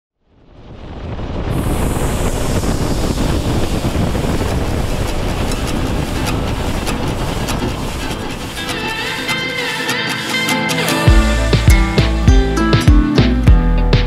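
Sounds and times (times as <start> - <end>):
wind and road noise roar: 0.2 - 9.0.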